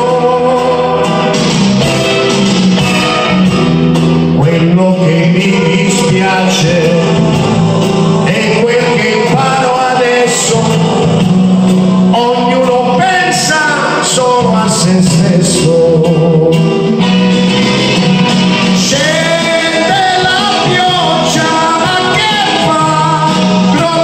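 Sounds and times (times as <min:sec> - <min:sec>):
man singing into a microphone: 0:00.0 - 0:01.4, 0:04.3 - 0:17.0, 0:18.6 - 0:24.0
electronic keyboard accompaniment: 0:00.0 - 0:24.0.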